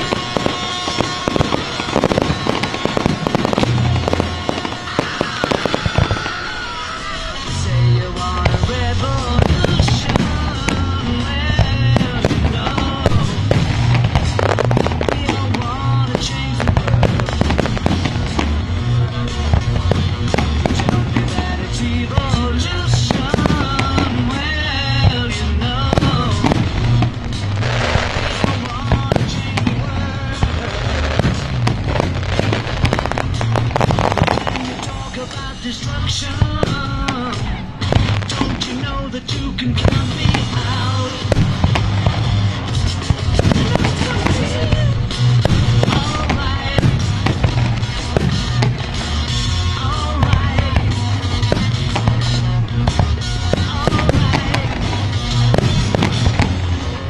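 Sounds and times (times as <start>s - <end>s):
fireworks bursting and crackling: 0.0s - 57.0s
loud music with bass beat: 0.0s - 57.0s.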